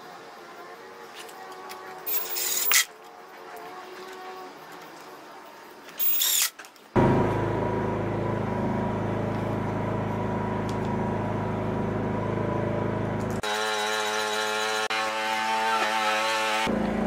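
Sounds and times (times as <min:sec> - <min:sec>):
power tool motor humming: 0:01.5 - 0:02.9, 0:06.0 - 0:06.5.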